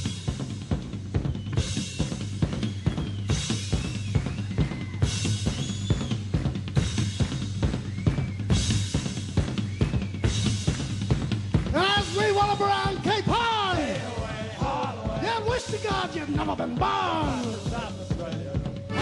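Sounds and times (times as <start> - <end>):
rock drum kit beat: 0.0 - 19.0
voices singing: 13.0 - 19.0.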